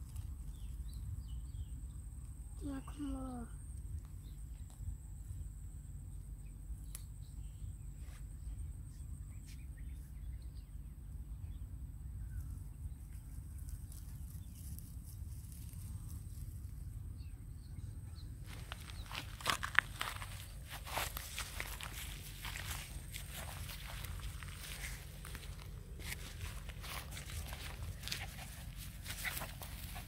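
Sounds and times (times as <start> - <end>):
low steady rumble: 0.0 - 30.0
footsteps crunching through grass: 18.4 - 30.0.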